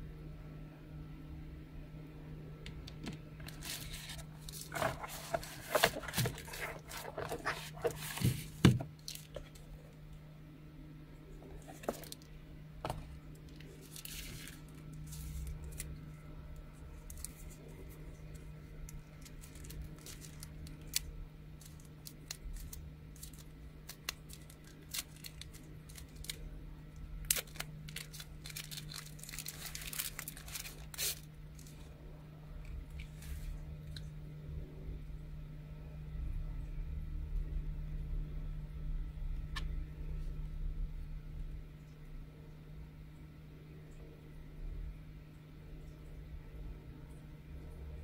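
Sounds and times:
steady low hum: 0.0s - 48.0s
packaging rustling and crinkling: 3.4s - 9.8s, 11.4s - 12.3s, 12.9s - 16.0s, 16.9s - 26.5s, 27.2s - 31.8s.

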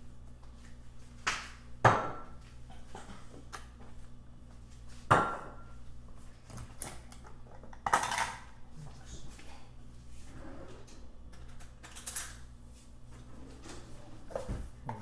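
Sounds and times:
low steady hum: 0.0s - 15.0s
loud knocks on countertop: 1.8s - 2.2s
dishes and utensils clattering: 7.5s - 8.5s.

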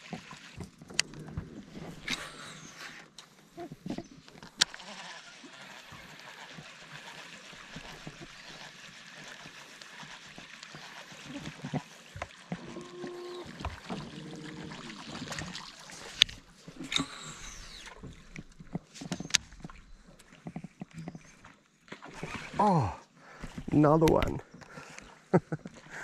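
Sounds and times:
reel spool whirring on a cast: 0.0s - 22.7s
fishing reel retrieving line: 4.0s - 13.6s, 16.8s - 18.0s, 22.0s - 22.7s.

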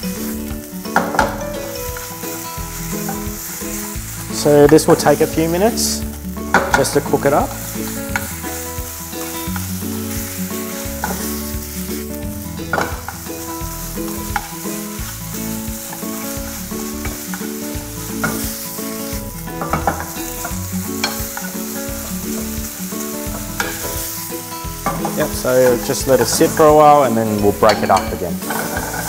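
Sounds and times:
meat sizzling in a frying pan: 0.0s - 29.0s
soft background music: 0.0s - 29.0s
metal spoon scraping a pan: 19.6s - 22.5s, 23.3s - 24.0s, 27.7s - 29.0s.

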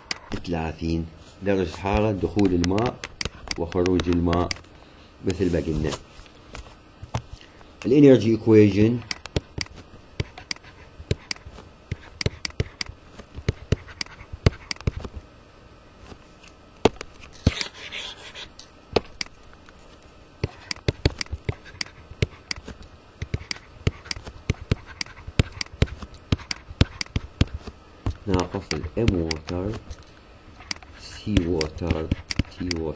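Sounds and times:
stylus tapping and scraping: 1.6s - 4.7s, 9.0s - 15.3s, 16.0s - 32.9s.

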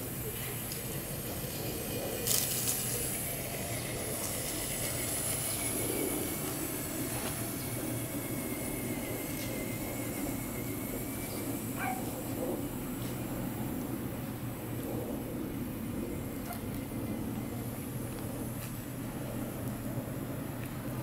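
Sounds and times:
electric motor whine: 0.0s - 21.0s
toy car driving over dirt: 0.1s - 12.7s.

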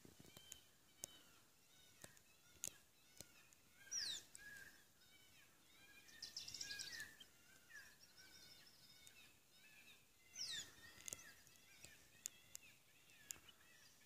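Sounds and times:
bird chirps and chatter: 0.1s - 14.0s
sharp ticks: 2.0s - 3.3s.

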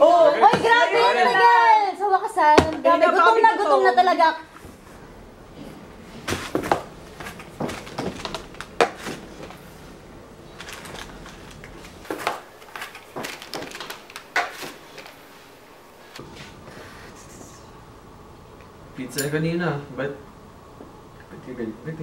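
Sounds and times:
paper and foil crinkling: 10.5s - 15.4s.

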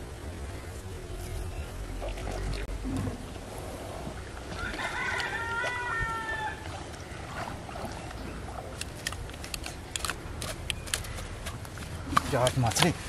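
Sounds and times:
rooster crowing: 4.6s - 6.7s.

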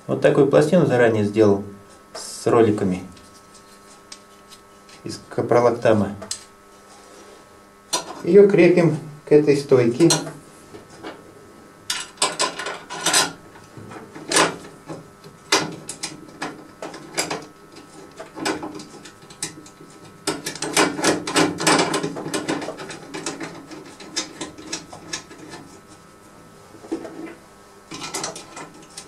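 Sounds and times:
parts scraping: 3.1s - 5.2s.

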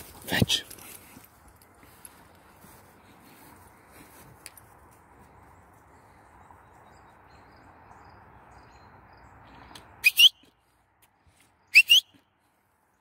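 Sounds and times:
person whistling: 10.0s - 10.5s, 11.7s - 12.2s.

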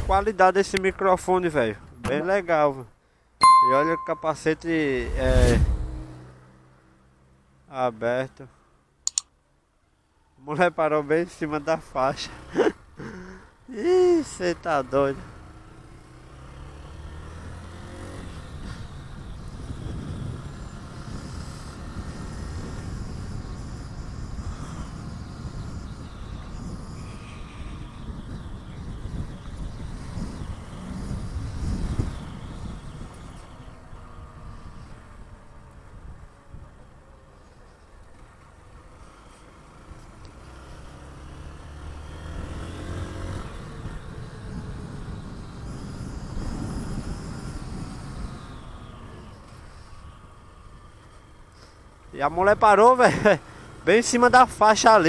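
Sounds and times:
motorcycle engine accelerating: 15.3s - 35.5s, 39.0s - 51.4s
wind noise on microphone: 18.5s - 33.6s, 43.3s - 48.7s.

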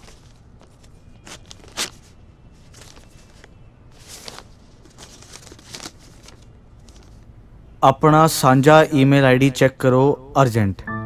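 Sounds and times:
paper tearing and crinkling: 0.0s - 7.2s.

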